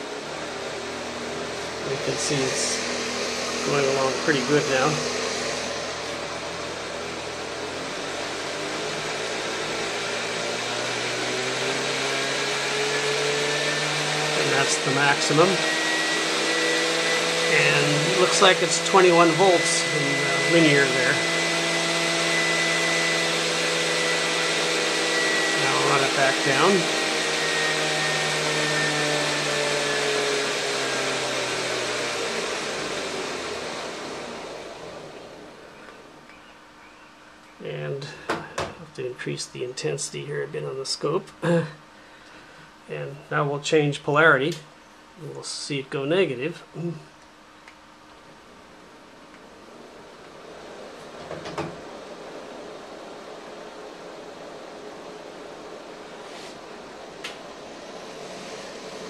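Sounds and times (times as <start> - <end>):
model locomotive motor whirring: 1.0 - 35.0.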